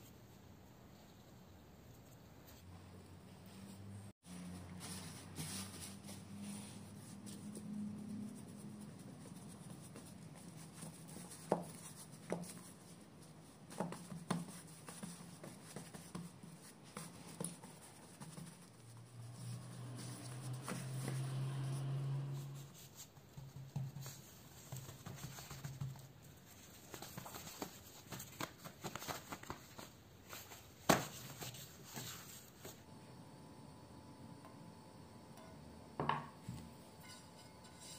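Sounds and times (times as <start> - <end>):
hands patting dough on worktop: 5.2 - 32.8
knock on worktop: 36.0 - 36.4.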